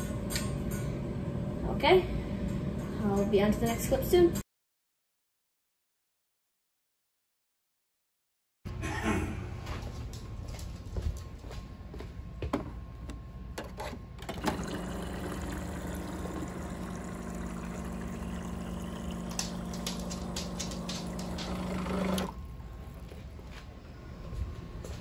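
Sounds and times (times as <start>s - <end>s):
water cooler motor hum: 12.4s - 25.0s
water pouring into plastic bottle: 14.5s - 22.4s.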